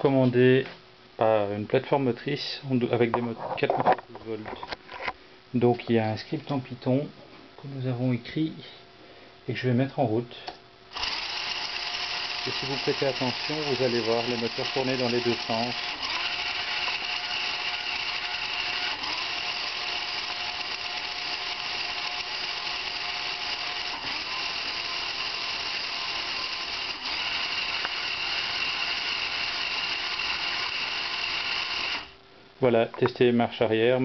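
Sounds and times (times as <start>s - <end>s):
electric motors whining: 10.9s - 32.2s.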